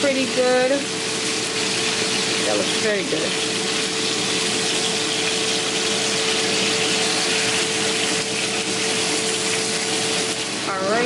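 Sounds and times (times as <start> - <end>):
steaks sizzling in frying pan: 0.0 - 11.0.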